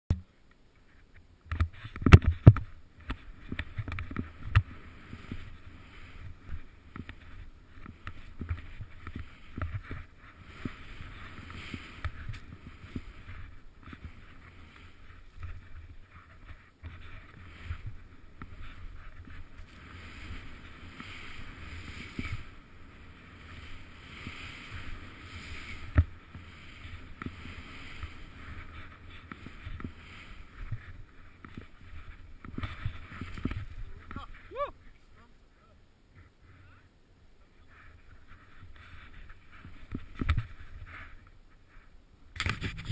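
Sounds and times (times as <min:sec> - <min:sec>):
skis swishing through powder snow: 0:03.1 - 0:35.3, 0:37.5 - 0:42.9.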